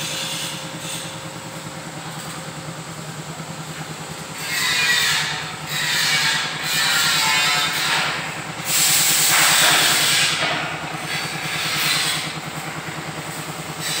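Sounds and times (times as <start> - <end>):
diesel engine idling: 0.0 - 14.0
loud air hiss: 8.6 - 10.4.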